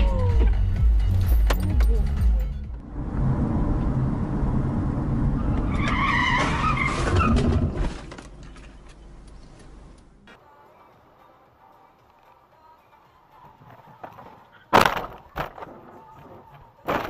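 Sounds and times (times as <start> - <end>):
car road rumble: 0.0 - 10.4
car tyres squealing: 5.1 - 7.9.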